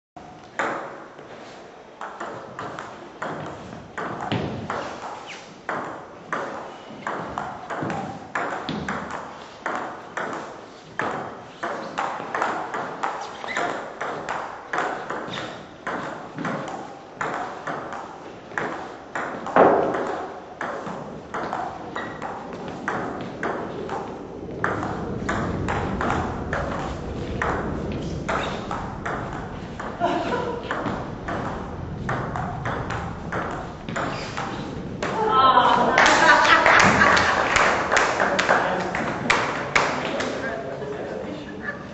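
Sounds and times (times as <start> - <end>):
low rumble: 21.8 - 39.9.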